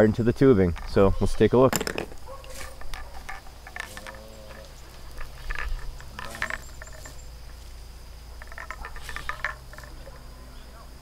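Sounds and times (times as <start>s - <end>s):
high insect drone: 0.0s - 11.0s
plastic pipe fittings clicking: 1.8s - 7.2s, 8.4s - 10.2s.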